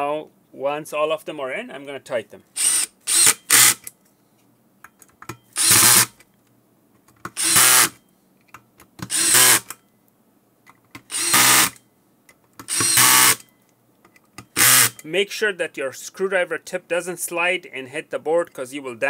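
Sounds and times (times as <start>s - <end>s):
electric screwdriver bursts: 2.6s - 3.9s, 5.5s - 6.2s, 7.3s - 8.0s, 9.0s - 9.8s, 11.0s - 11.8s, 12.6s - 13.4s, 14.4s - 15.0s.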